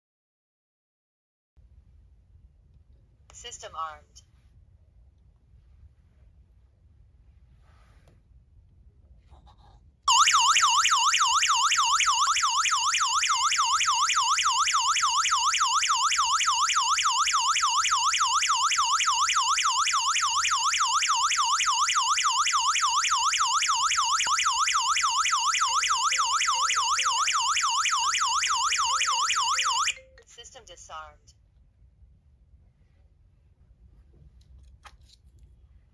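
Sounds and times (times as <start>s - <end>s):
shrill warbling alarm siren: 10.1s - 30.0s.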